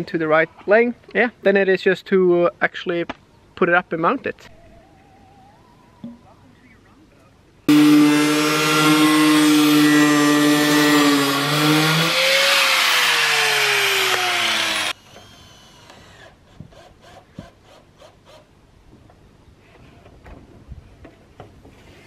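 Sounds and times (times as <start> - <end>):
angle grinder whining: 7.7 - 15.0.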